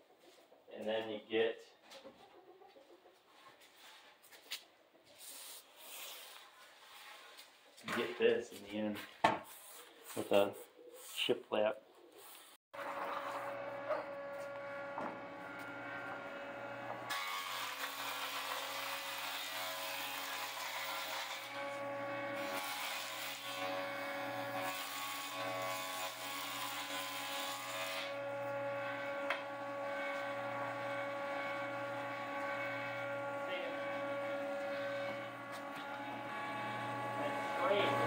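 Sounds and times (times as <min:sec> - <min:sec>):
jointer motor hum: 0:12.8 - 0:17.1, 0:28.2 - 0:38.0.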